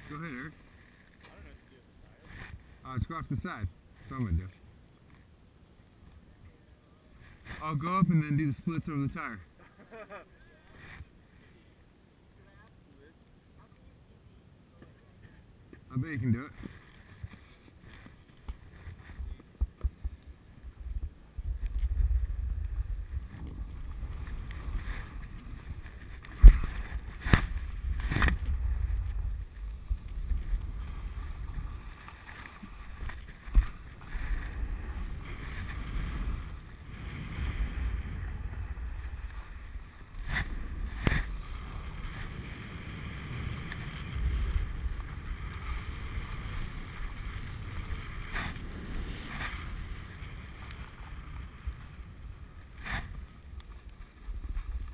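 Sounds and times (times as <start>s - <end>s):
snowboard sliding over snow: 16.2s - 54.9s
wind buffeting microphone: 18.5s - 54.9s.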